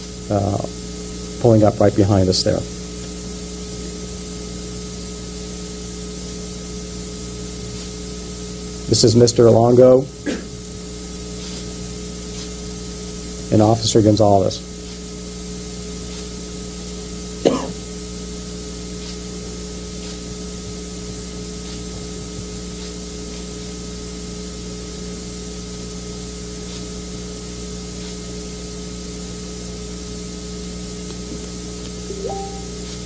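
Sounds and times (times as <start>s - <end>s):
low electrical hum: 0.0s - 33.0s
brief rising tone: 32.1s - 32.8s.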